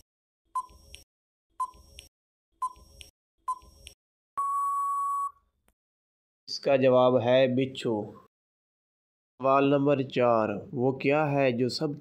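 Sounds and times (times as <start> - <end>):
long steady beep: 4.4 - 5.5
short electronic beeps: 4.4 - 5.5.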